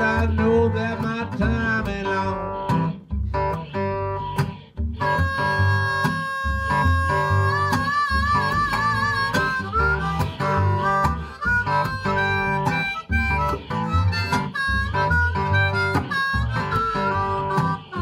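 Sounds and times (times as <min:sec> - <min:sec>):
blues harmonica: 0:00.0 - 0:18.0
strummed acoustic guitar: 0:00.0 - 0:18.0.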